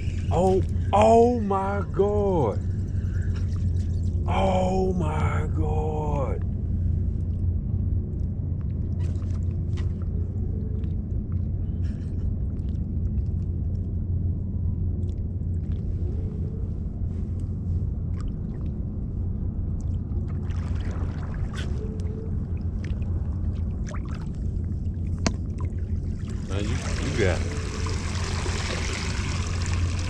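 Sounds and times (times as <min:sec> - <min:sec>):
small splashes of water: 0:20.3 - 0:21.8, 0:25.2 - 0:30.0.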